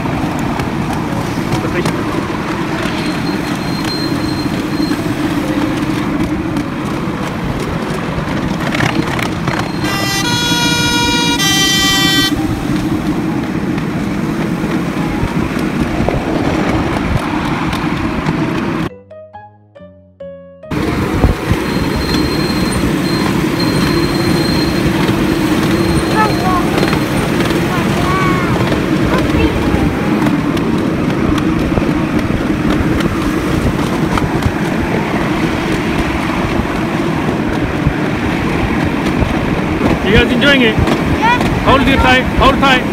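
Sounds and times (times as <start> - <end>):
miniature train rumbling on track: 0.0 - 18.9, 20.7 - 42.9
two-tone train horn blasts: 9.7 - 12.9.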